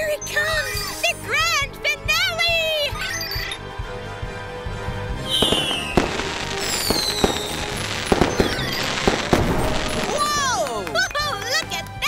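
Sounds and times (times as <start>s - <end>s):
background music: 0.0s - 12.0s
firework whistles: 5.2s - 10.3s
firework bangs and crackles: 5.2s - 11.7s.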